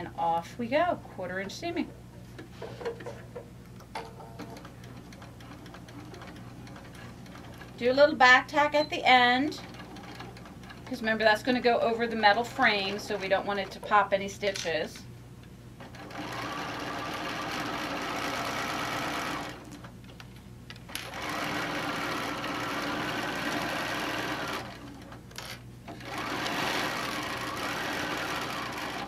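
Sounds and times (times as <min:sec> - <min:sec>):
sewing machine stitching: 0:04.4 - 0:08.1, 0:09.5 - 0:11.4, 0:15.8 - 0:19.8, 0:20.9 - 0:25.2, 0:25.9 - 0:29.0.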